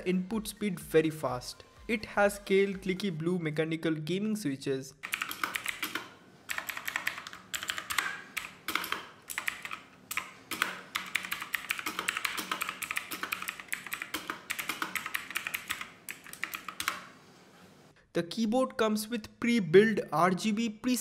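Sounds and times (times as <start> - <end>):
mechanical keyboard clicks: 5.0 - 17.1.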